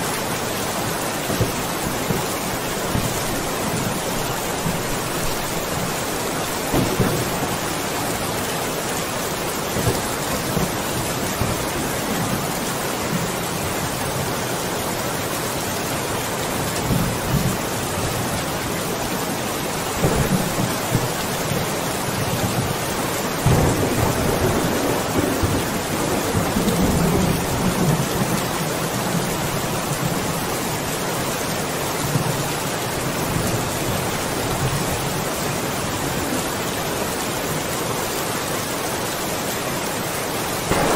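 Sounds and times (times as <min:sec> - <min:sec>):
steady rain falling: 0:00.0 - 0:40.9
low thunder rumbling: 0:01.2 - 0:08.8, 0:20.0 - 0:22.8, 0:23.4 - 0:28.5, 0:40.7 - 0:40.9.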